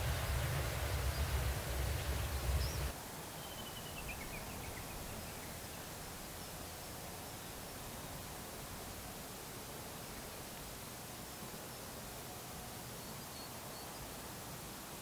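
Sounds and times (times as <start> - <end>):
wind rumbling on microphone: 0.0 - 2.9
faint outdoor hiss: 0.0 - 15.0
small bird chirping: 0.1 - 5.6.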